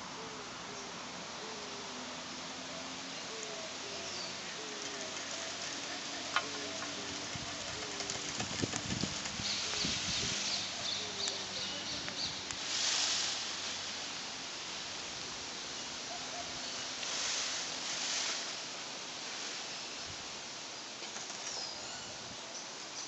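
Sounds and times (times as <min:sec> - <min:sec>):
steady hiss: 0:00.0 - 0:23.0
rustling rush of noise: 0:04.3 - 0:15.6, 0:16.8 - 0:20.6.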